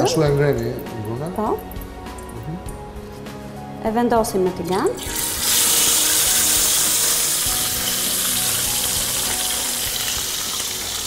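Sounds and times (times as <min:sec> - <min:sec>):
fish sizzling in hot oil: 0:05.0 - 0:11.0.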